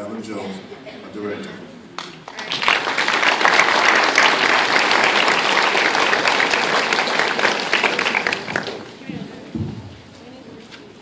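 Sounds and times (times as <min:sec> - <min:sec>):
audience applauding: 0:02.0 - 0:09.0.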